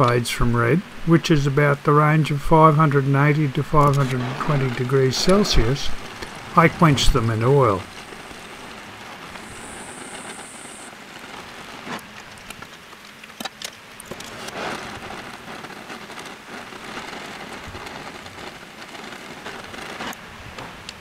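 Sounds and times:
torch flame hissing: 2.5 - 12.5.

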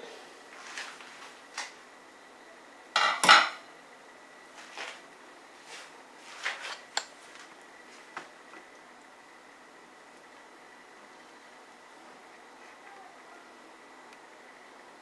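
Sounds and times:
metal kitchenware clattering: 3.0 - 3.6.

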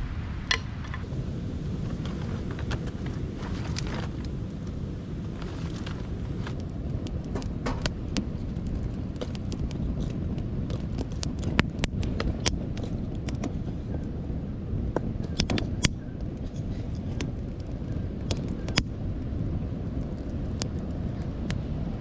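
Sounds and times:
low fire rumble: 0.0 - 22.0
campfire crackling and popping: 0.4 - 22.0
wood knocking: 7.4 - 7.9.

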